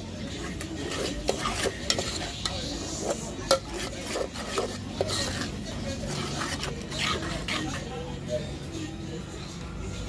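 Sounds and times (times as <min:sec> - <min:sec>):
spoon scraping a saucepan: 0:00.1 - 0:08.1
spoon clinking against pot: 0:00.5 - 0:05.5.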